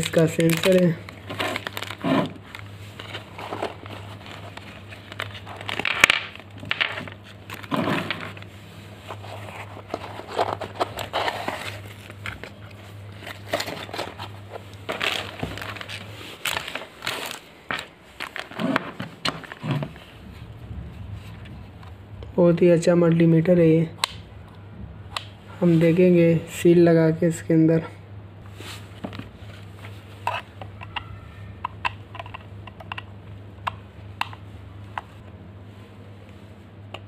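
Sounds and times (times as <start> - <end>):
plastic bags crinkling: 0.0 - 20.1
low steady hum: 0.0 - 37.0.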